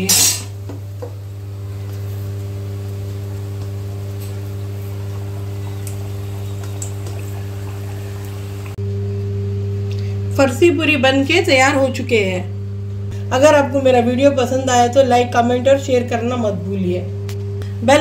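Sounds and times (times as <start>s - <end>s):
low electrical hum: 0.0s - 18.0s
deep-frying sizzle: 0.5s - 8.8s
oil popping: 0.6s - 8.8s.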